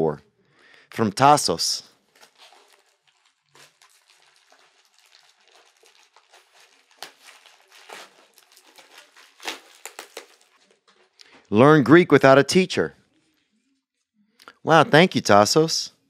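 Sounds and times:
plastic crinkling and rustling: 0:01.9 - 0:11.6, 0:13.0 - 0:14.0
knife slitting plastic: 0:02.1 - 0:11.2.

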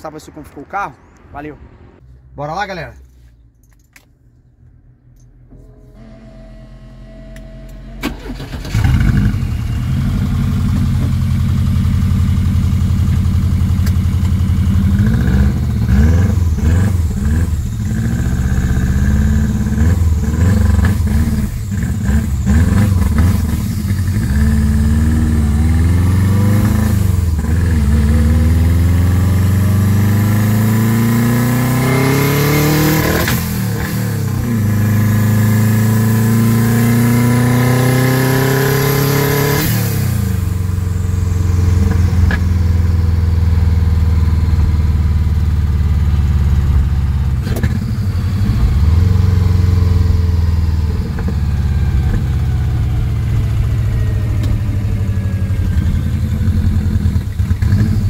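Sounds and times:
car engine starting and accelerating: 0:00.0 - 0:04.0, 0:04.6 - 0:58.0.

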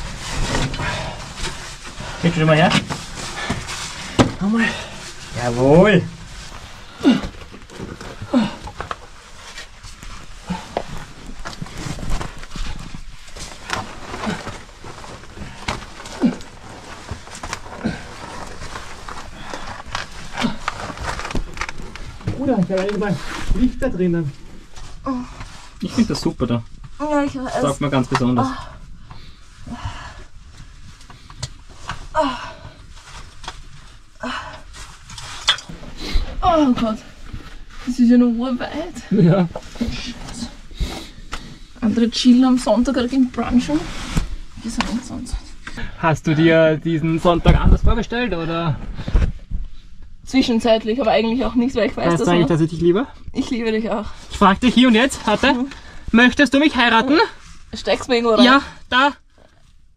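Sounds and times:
clothing scraping over rock: 0:00.0 - 0:26.2, 0:34.9 - 0:45.4.

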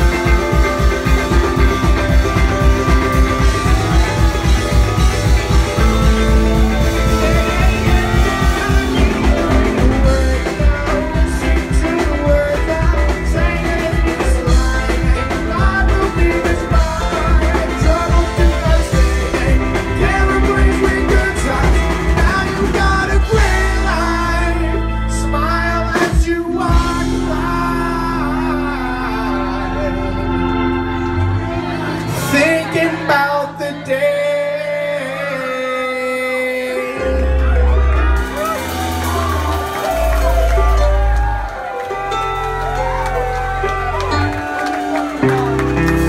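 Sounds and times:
drum kit steady beat: 0:00.0 - 0:24.2, 0:38.2 - 0:44.2
electric bass: 0:00.0 - 0:46.0
electric guitar: 0:00.0 - 0:46.0
keyboard: 0:00.0 - 0:46.0.

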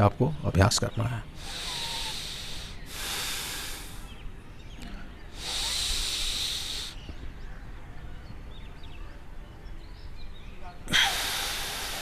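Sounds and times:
deep hissing breaths: 0:01.3 - 0:04.3, 0:05.1 - 0:07.2, 0:10.9 - 0:12.0.

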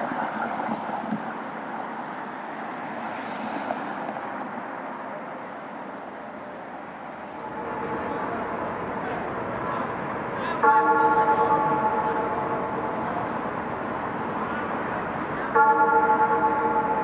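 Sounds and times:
traffic noise: 0:00.0 - 0:17.0
faint steady tone: 0:04.8 - 0:13.7.

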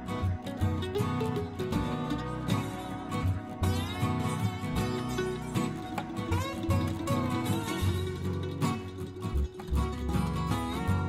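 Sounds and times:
plucked string music: 0:00.0 - 0:11.0.

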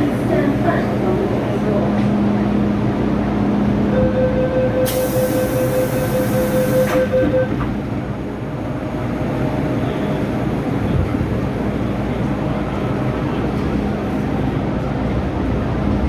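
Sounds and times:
train car low rumble: 0:00.0 - 0:16.0
rapid warning beeping: 0:03.9 - 0:07.6
train doors hissing shut: 0:04.8 - 0:07.8.

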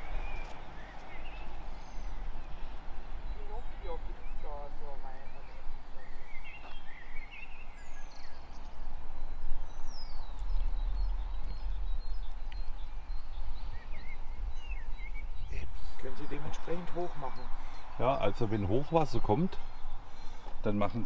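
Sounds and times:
small birds chirping: 0:00.0 - 0:21.0
low uneven rumble: 0:07.7 - 0:20.7.

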